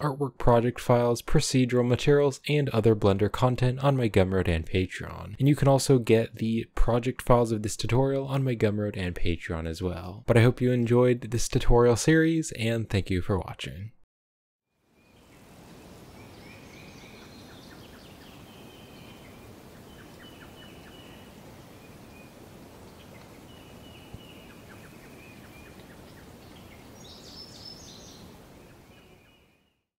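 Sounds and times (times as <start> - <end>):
steady outdoor hiss: 14.8 - 29.6
birds chirping: 15.0 - 29.8.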